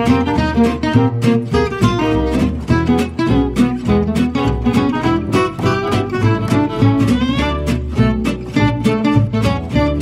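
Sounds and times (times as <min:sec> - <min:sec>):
acoustic guitar music with beat: 0:00.0 - 0:10.0.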